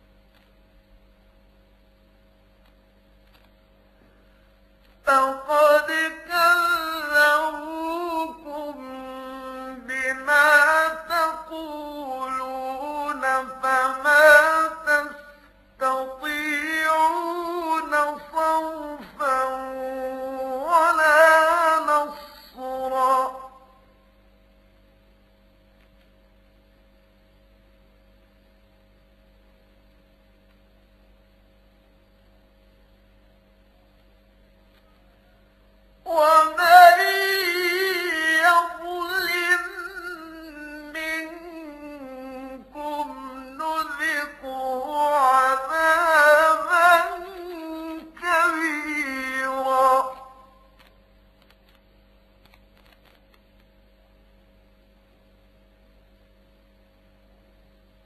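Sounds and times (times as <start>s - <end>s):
low electrical hum: 0.0s - 58.0s
man chanting recitation: 5.1s - 23.7s, 36.1s - 50.5s.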